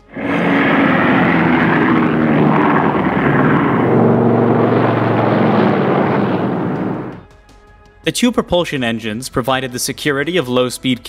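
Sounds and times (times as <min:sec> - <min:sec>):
rushing noise: 0:00.0 - 0:07.2
propeller aircraft engines: 0:00.0 - 0:07.3.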